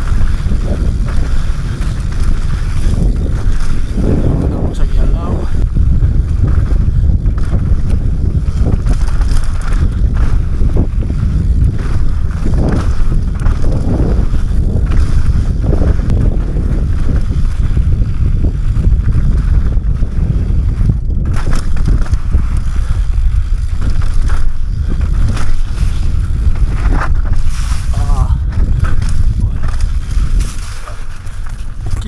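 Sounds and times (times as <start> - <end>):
bike rattling: 0.0 - 32.0
wind buffeting microphone: 0.0 - 32.0
tyres crunching over stones: 21.2 - 32.0.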